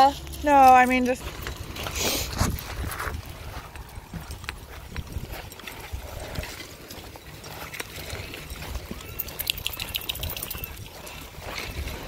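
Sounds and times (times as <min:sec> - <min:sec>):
footsteps on pebbles: 0:00.0 - 0:12.0
sharp clicks: 0:09.1 - 0:10.7.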